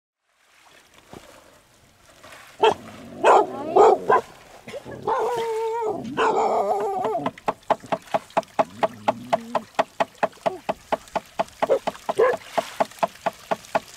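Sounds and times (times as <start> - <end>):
dog barking: 2.6 - 4.3, 5.1 - 5.4, 6.2 - 7.2, 11.6 - 12.5.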